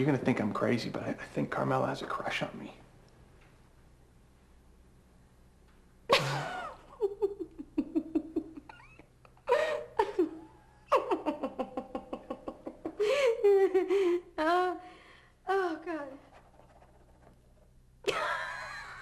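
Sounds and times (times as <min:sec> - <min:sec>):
woman laughing hard: 0:06.1 - 0:14.4.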